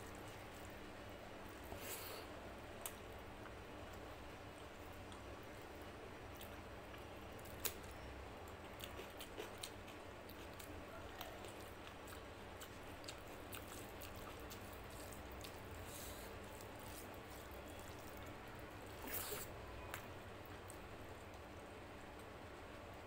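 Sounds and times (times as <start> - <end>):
low steady hum: 0.0 - 23.0
wet squishing of hand kneading food: 8.6 - 21.4.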